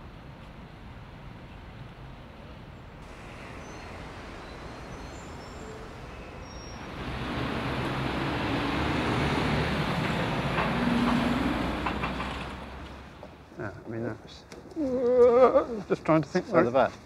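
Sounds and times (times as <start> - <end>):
vehicle passing: 3.0 - 13.5.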